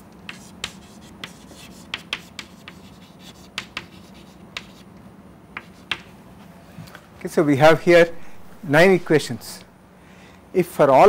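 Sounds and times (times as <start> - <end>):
chalk tapping on chalkboard: 0.3 - 4.8, 5.6 - 6.1.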